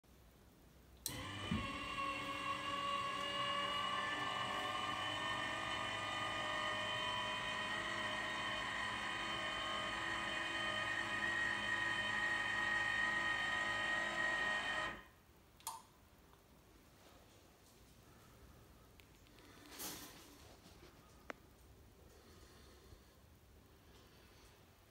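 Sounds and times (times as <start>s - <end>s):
electric lift motor whining: 1.0s - 15.1s.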